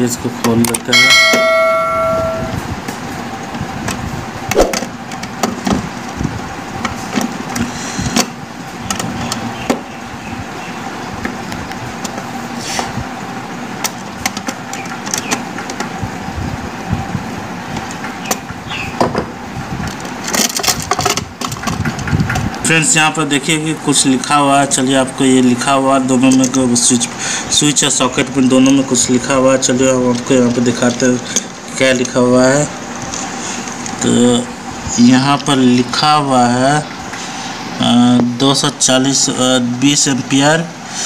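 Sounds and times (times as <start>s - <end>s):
background noise: 0.0s - 3.5s
short ringing chime: 0.9s - 2.7s.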